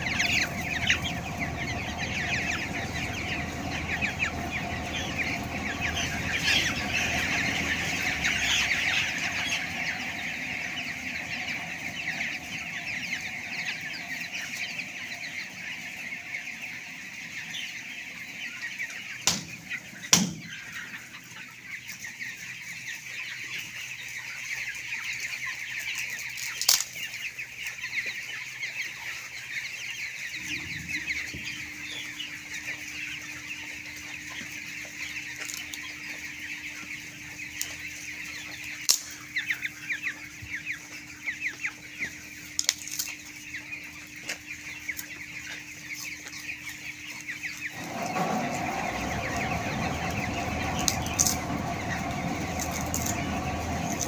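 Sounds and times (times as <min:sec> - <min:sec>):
steady low hum: 0:00.0 - 0:18.6, 0:43.2 - 0:54.0
flock of chickens cheeping: 0:00.0 - 0:54.0.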